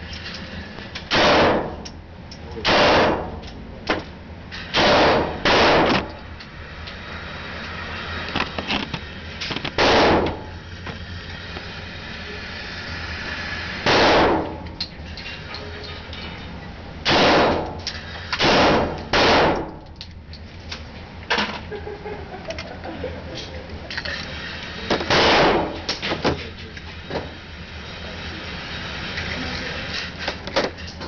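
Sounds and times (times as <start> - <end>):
gunshots: 1.1 - 1.8, 2.6 - 3.4, 4.7 - 6.2, 9.8 - 10.5, 13.8 - 14.6, 17.0 - 17.8, 18.4 - 19.7, 25.1 - 25.8.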